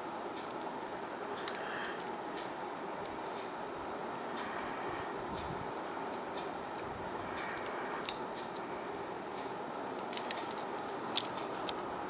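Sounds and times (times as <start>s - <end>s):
steady hiss: 0.0s - 12.0s
plastic parts clicking: 1.4s - 2.1s, 6.1s - 8.6s, 9.3s - 11.8s.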